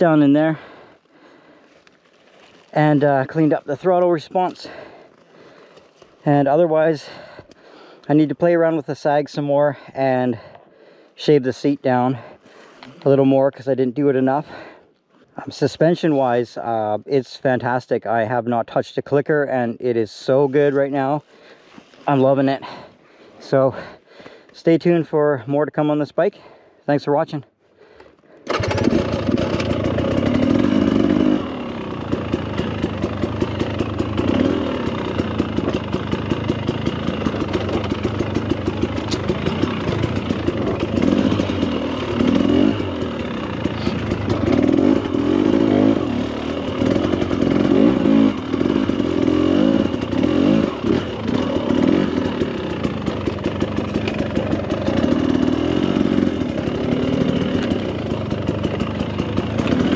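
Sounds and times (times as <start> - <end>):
motorcycle engine revving: 28.5 - 59.9.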